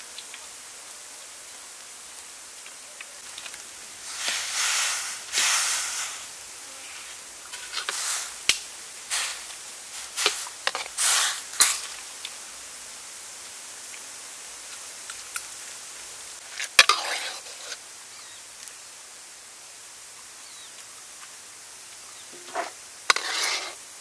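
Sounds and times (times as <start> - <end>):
water boiling: 0.0 - 24.0
water swishing in a pot: 9.1 - 12.0, 16.4 - 17.8, 22.3 - 24.0.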